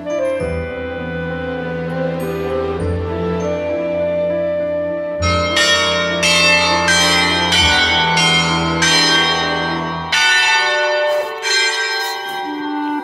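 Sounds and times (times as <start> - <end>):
bells playing slow melody: 0.0 - 13.0
low sustained chord: 5.2 - 13.0.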